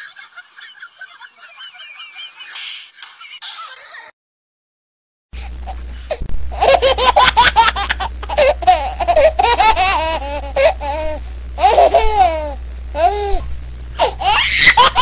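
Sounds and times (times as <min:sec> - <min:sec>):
high-pitched laughter: 0:00.0 - 0:04.1, 0:14.0 - 0:15.0
low hum: 0:05.4 - 0:15.0.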